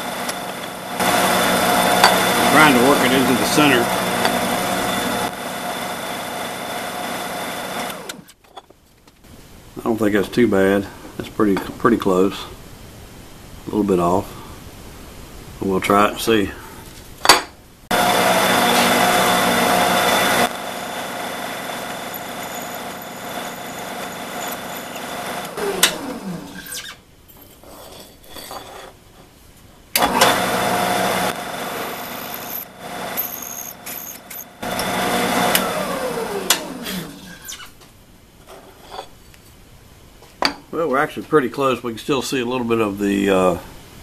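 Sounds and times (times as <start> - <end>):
drill press drilling metal: 0.0 - 8.3, 17.9 - 26.9, 30.0 - 37.5.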